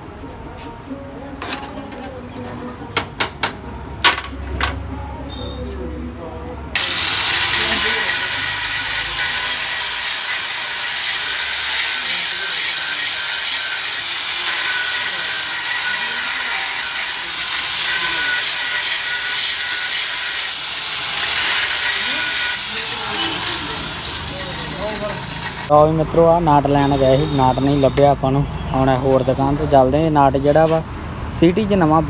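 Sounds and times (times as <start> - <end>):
electric grinder grinding steel: 6.8 - 25.7, 26.8 - 27.8.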